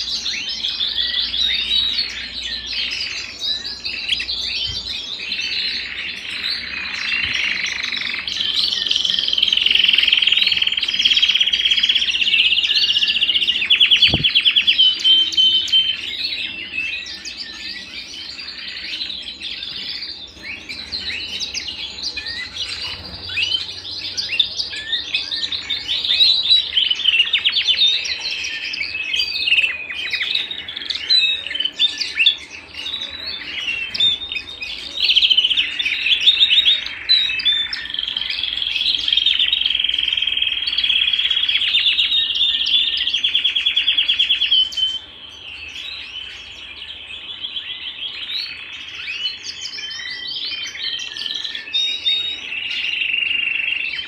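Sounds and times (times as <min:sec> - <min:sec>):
canaries singing trills: 0:00.0 - 0:54.0.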